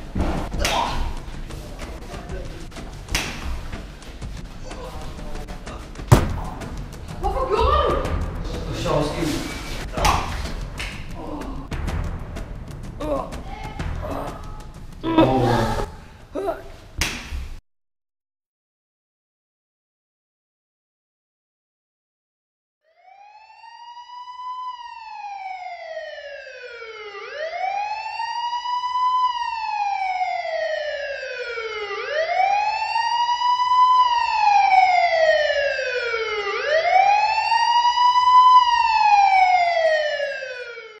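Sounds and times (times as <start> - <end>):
police siren wailing: 22.9 - 41.0.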